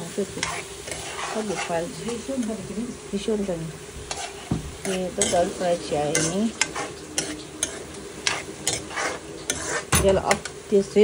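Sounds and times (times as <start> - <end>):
food sizzling in a frying pan: 0.0 - 11.0
utensil scraping a pan: 0.2 - 2.7, 4.0 - 10.5.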